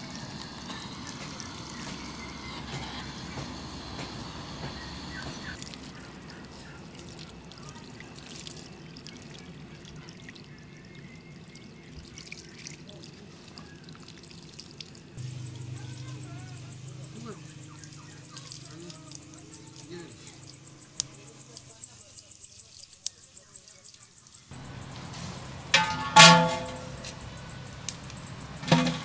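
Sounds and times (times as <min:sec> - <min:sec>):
hose water splashing: 0:00.0 - 0:29.0.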